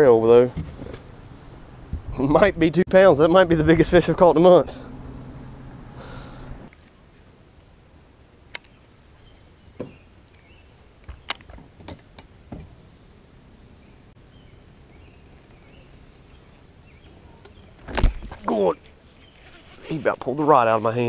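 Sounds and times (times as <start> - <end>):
low hum: 3.4 - 8.0.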